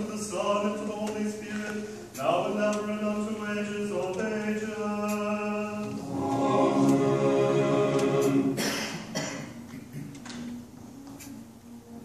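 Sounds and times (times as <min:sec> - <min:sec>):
choir singing in harmony: 0:03.2 - 0:09.3.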